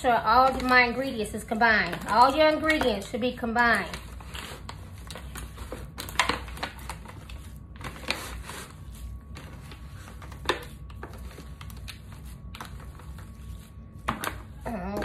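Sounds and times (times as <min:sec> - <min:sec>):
foil pan crinkling: 0:00.0 - 0:15.0.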